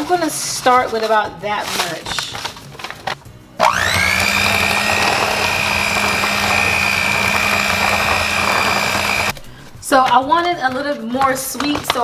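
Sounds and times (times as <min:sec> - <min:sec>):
plastic bag rustling: 0:00.8 - 0:03.2
electric hand mixer whine: 0:03.6 - 0:09.4.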